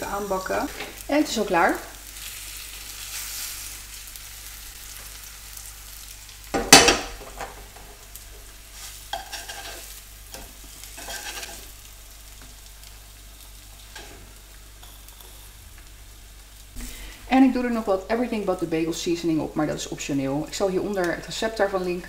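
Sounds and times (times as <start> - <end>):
tofu sizzling in oil: 0.0 - 22.0
spatula scraping pan: 8.8 - 11.7.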